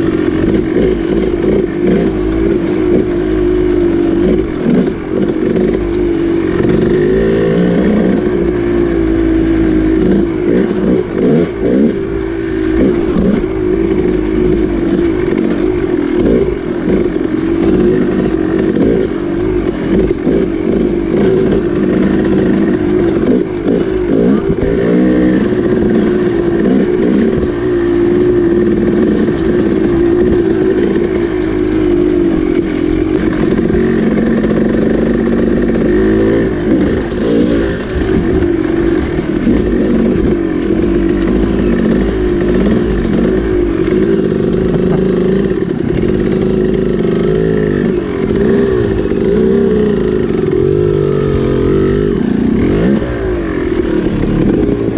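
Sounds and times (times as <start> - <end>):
dirt bike engine revving: 0.0 - 54.9.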